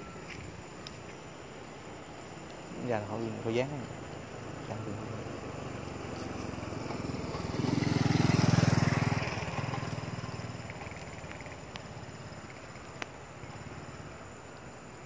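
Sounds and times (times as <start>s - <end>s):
motor vehicle passing by: 4.3s - 12.6s.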